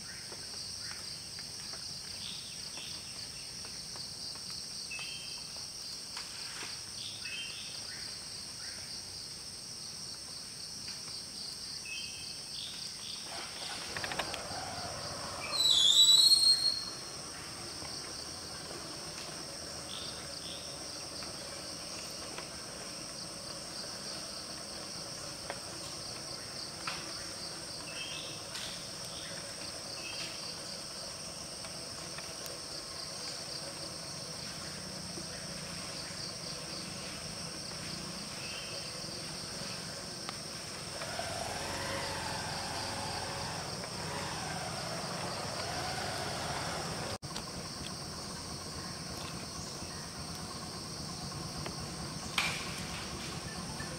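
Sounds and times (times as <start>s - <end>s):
high-pitched insect chorus: 0.0s - 53.9s
short insect chirps: 10.8s - 53.9s.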